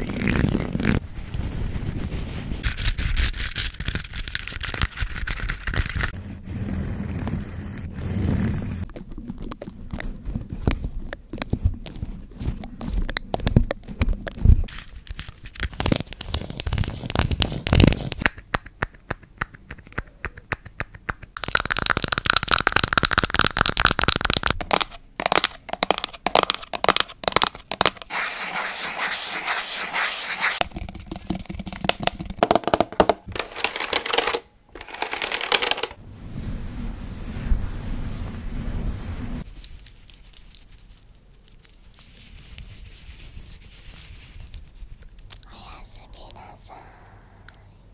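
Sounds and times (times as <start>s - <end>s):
scratchy rustling: 0.0s - 18.2s, 24.8s - 32.4s, 33.4s - 45.7s.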